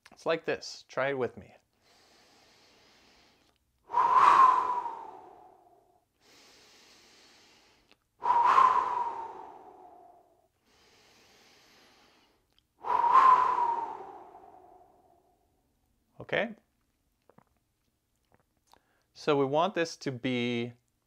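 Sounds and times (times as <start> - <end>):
man inhaling through nose: 1.8 - 14.9
man exhaling through mouth: 3.9 - 5.8, 6.5 - 10.3, 12.8 - 15.2.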